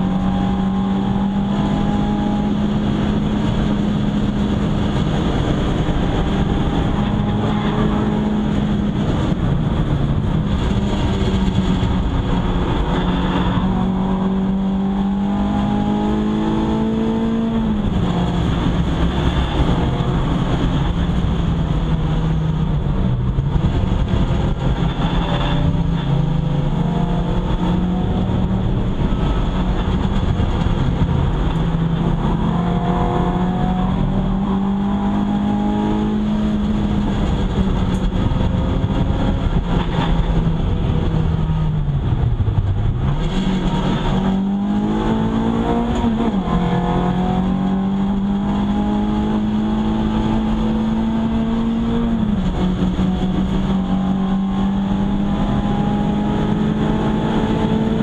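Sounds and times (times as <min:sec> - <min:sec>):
car engine pulling hard: 0:00.0 - 0:58.0
loud road and wind noise: 0:00.0 - 0:58.0.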